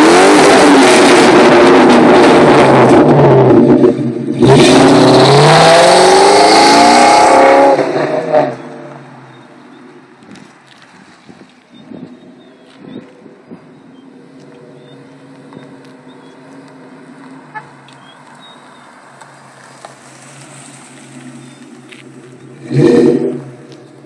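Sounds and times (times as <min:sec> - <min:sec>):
car engine running at low speed: 0:08.2 - 0:24.0.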